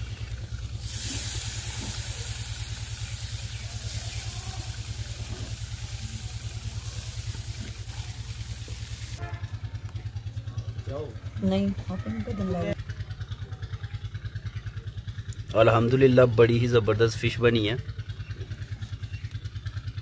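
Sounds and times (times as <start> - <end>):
fish sizzling on a grill: 0.0 - 9.2
low pulsing hum: 0.0 - 15.6.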